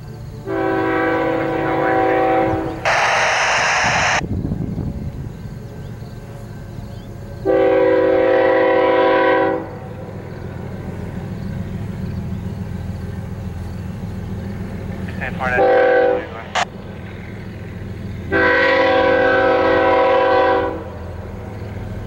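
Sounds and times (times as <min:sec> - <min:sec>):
locomotive rumble: 0:00.0 - 0:22.0
locomotive air horn blasts: 0:00.4 - 0:04.2, 0:07.4 - 0:09.9, 0:15.5 - 0:16.6, 0:18.3 - 0:21.0
loud air hiss: 0:02.4 - 0:04.6.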